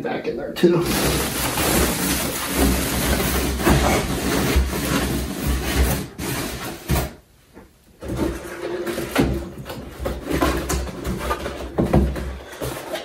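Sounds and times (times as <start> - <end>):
plastic bag rustling and crinkling: 0.6 - 7.2
bag rubbing against styrofoam: 0.8 - 7.0.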